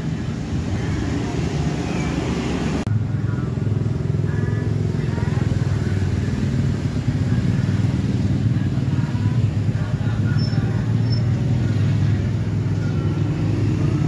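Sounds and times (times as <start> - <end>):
faint voices: 0.0 - 14.0
low engine rumble: 0.0 - 14.0.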